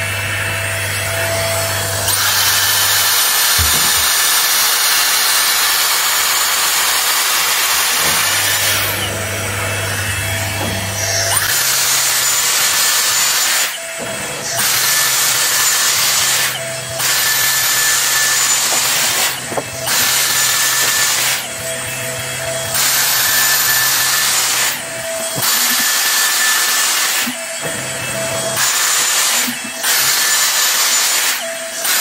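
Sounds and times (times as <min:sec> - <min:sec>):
hair straightener blowing air: 0:02.0 - 0:21.9, 0:22.7 - 0:27.4.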